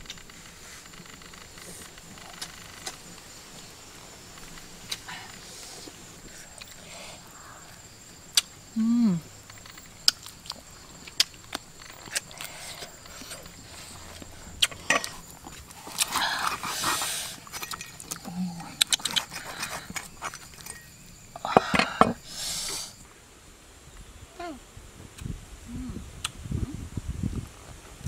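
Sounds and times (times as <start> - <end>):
chewing and tearing food: 9.7 - 20.7
lip smacks and mouth clicks: 18.0 - 20.6.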